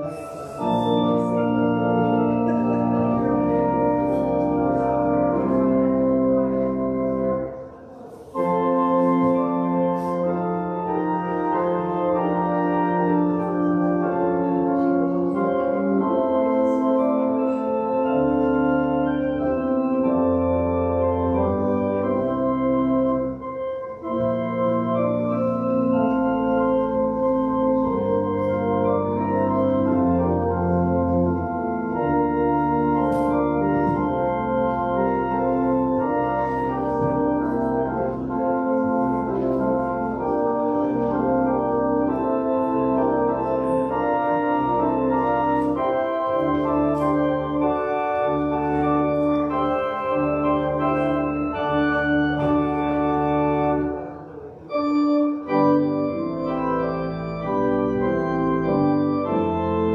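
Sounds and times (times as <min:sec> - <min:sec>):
church organ playing held chords: 0:00.0 - 0:59.9.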